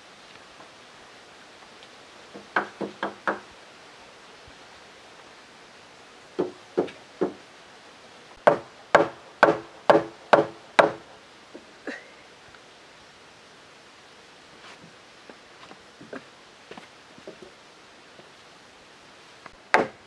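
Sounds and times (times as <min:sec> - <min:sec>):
wooden mallet knocking timbers: 0:02.3 - 0:03.5, 0:06.4 - 0:07.4, 0:08.4 - 0:11.0, 0:19.7 - 0:20.0.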